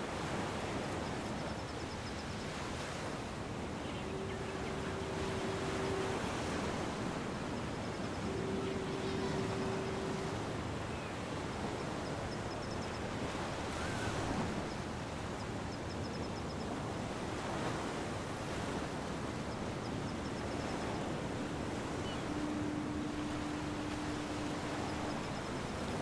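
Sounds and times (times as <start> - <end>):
ocean surf washing on beach: 0.0 - 26.0
low steady hum: 3.2 - 16.0, 18.9 - 26.0
faint high chirps: 3.7 - 14.8, 19.5 - 26.0.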